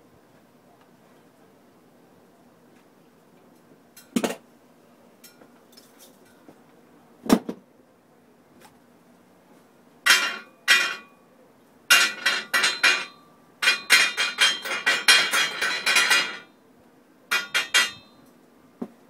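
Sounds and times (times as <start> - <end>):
hammer ringing on steel: 10.1 - 11.1, 11.9 - 16.5, 17.3 - 18.3.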